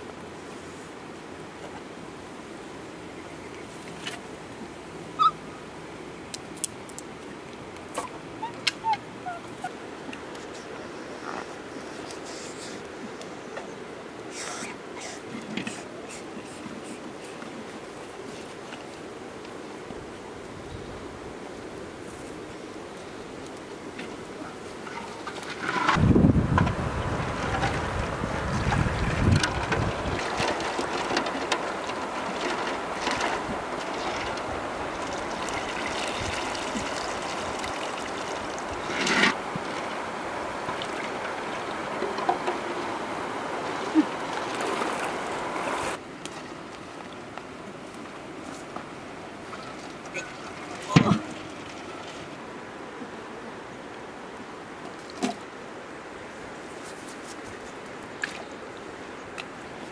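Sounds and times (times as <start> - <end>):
steady hiss: 9.5 - 27.2
water splashing and sloshing: 23.6 - 52.9, 54.6 - 59.9.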